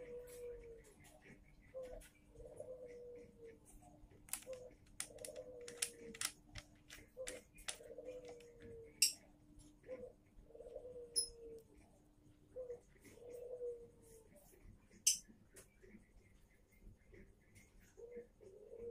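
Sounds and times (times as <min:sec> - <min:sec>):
dove cooing: 0:00.0 - 0:03.7, 0:04.3 - 0:06.3, 0:06.9 - 0:09.2, 0:09.8 - 0:11.9, 0:12.5 - 0:14.4, 0:17.8 - 0:18.9
clicks and taps on wooden tripod: 0:04.3 - 0:09.2.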